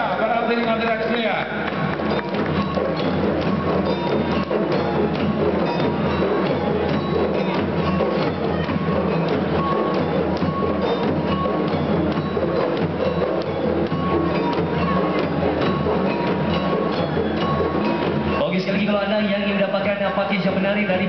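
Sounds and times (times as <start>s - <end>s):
frame drums playing: 0.0s - 21.0s.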